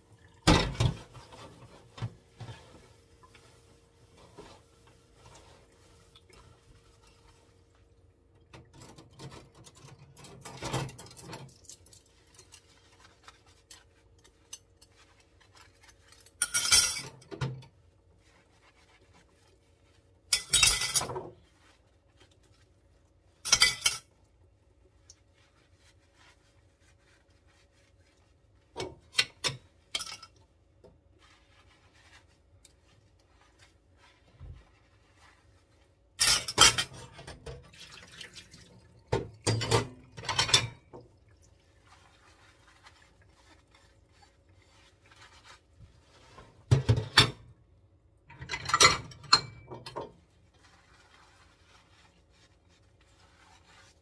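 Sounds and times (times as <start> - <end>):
dishes clattering in steel sink: 0.4 - 2.8, 8.5 - 11.8, 16.3 - 17.7, 20.3 - 21.4, 23.4 - 24.1, 36.2 - 37.8, 39.1 - 41.0, 46.6 - 47.5, 48.3 - 50.2
sponge scrubbing: 0.7 - 16.4, 17.0 - 47.1, 49.8 - 54.0.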